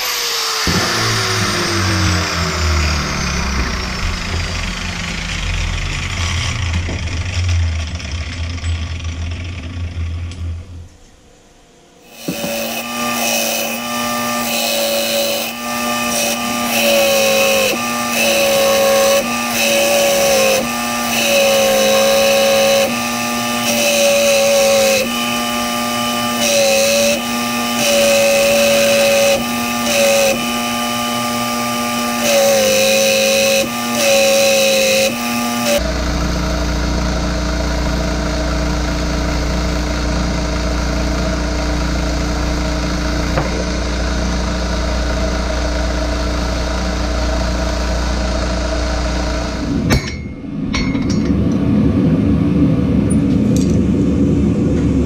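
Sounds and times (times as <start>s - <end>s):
angle grinder spinning down: 0.0s - 10.8s, 12.0s - 50.2s
belt sander grinding steel: 0.0s - 10.8s, 12.0s - 51.6s
low rumble: 0.7s - 11.7s, 35.8s - 55.0s.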